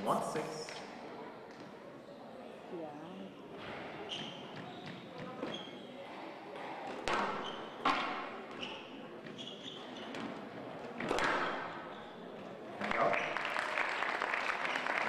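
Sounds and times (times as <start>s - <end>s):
squash ball hitting court walls: 6.9s - 11.9s
spectators applauding: 12.8s - 15.0s.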